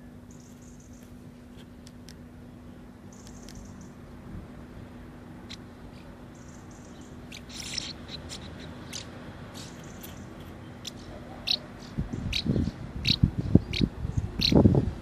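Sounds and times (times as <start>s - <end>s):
house martins chirping: 5.5s - 14.7s.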